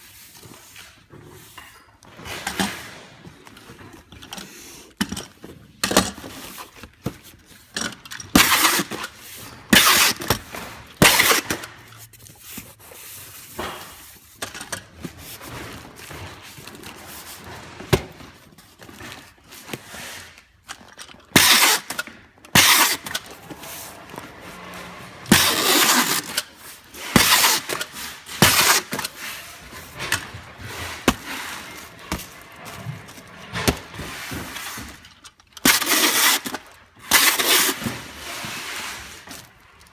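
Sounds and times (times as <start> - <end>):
packing tape screeching off dispenser: 8.3 - 11.9, 21.3 - 32.7, 35.6 - 38.2
cardboard rustling: 8.4 - 39.9.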